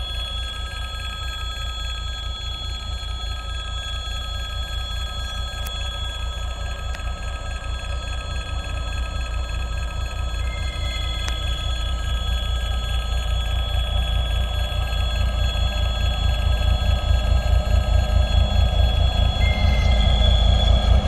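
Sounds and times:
diesel locomotive engine rumble: 2.2 - 21.0
high bell-like ringing: 10.4 - 21.0.

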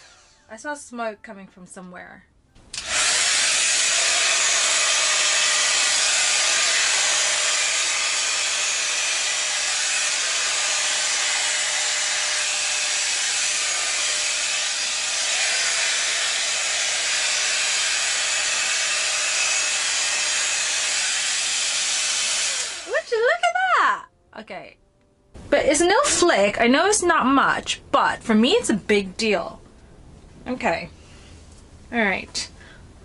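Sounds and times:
hot air brush fan blowing: 0.0 - 0.5, 2.7 - 23.5.

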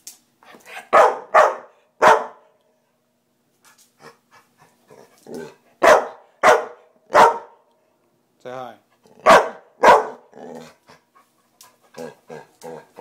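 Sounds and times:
dog barking: 0.7 - 2.5, 5.4 - 7.6, 9.2 - 10.3.

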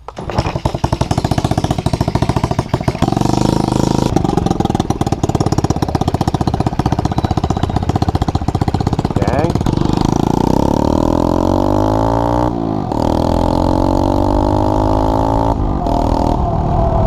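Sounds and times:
quad engine starting and idling: 0.1 - 12.1.

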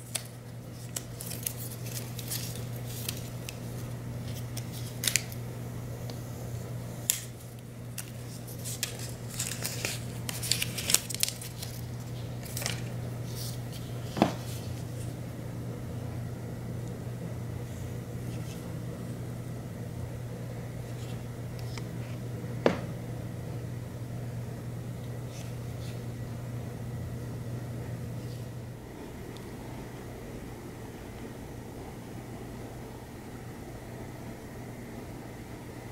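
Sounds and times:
plastic film crinkling: 0.0 - 5.4, 7.0 - 15.1
steady low hum: 0.0 - 35.9.

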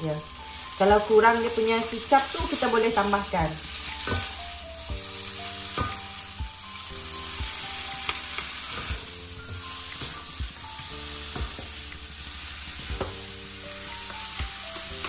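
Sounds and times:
noodles sizzling in a pan: 0.0 - 15.0
background music with a beat: 3.4 - 15.0.

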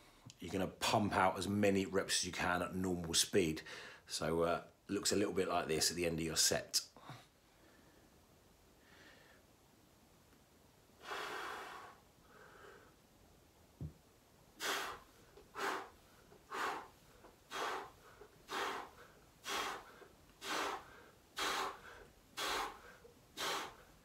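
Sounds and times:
man breathing hard: 3.7 - 4.1, 11.0 - 13.0, 14.6 - 24.0.

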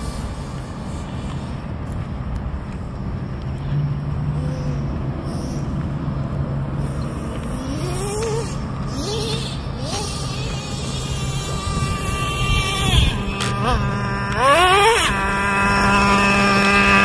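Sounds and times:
low steady drone: 0.0 - 17.0
toy truck motor revving: 6.8 - 17.0.

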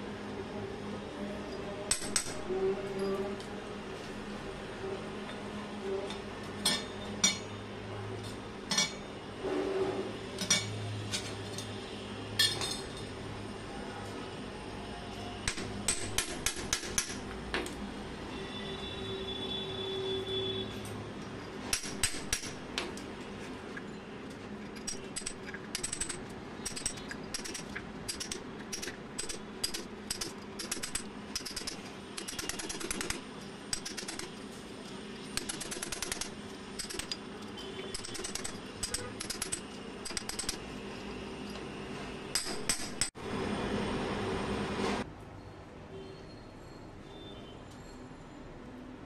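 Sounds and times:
tools tapping and chipping mortar: 1.9 - 2.5, 15.4 - 17.8, 21.7 - 23.1, 23.8 - 34.4, 35.3 - 40.7, 42.3 - 43.2.

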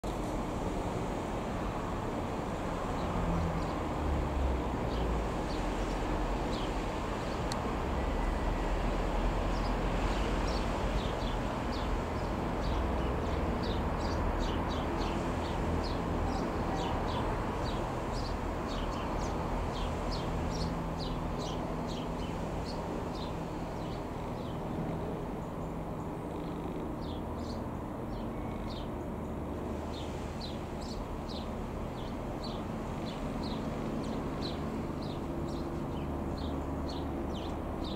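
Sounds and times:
light aeroplane engine droning: 0.0 - 37.9
birds chirping: 9.5 - 29.0.

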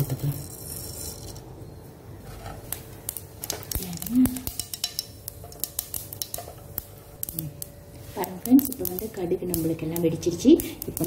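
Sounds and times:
mustard seeds popping in oil: 2.6 - 11.0.

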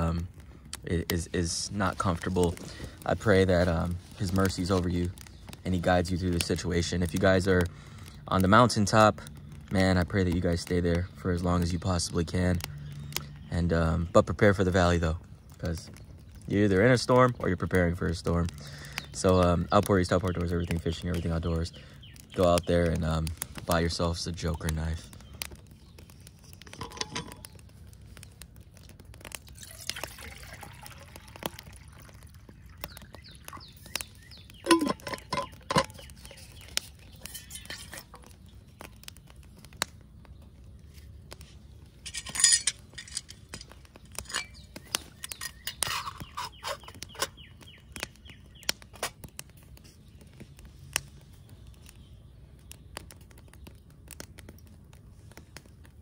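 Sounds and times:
wood fire crackling: 0.0 - 56.0
metal pot clinks and clanks: 26.8 - 27.4, 34.6 - 36.1
water poured into metal pot: 29.5 - 32.8.

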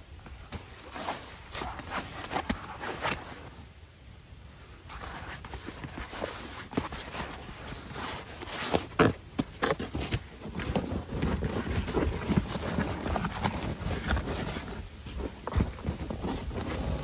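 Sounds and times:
mat scraping against wood: 0.4 - 3.5.

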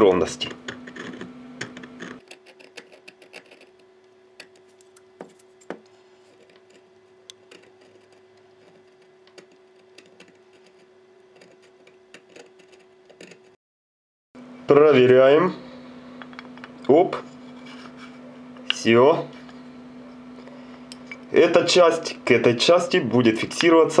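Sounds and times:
file scraping on metal: 2.0 - 3.8
faint steady hum: 14.4 - 24.0.

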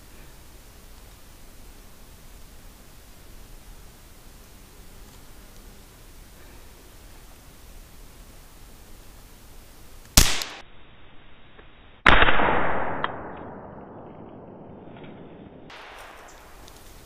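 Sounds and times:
gunshots: 10.2 - 10.6, 12.1 - 16.3.

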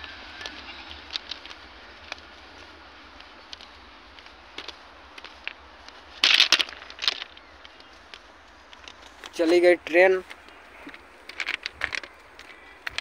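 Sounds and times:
phone handling rustle: 10.3 - 13.0.

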